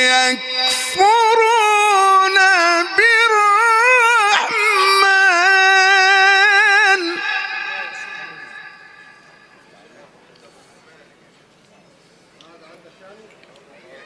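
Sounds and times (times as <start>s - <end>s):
man reciting melodically: 0.0s - 8.6s.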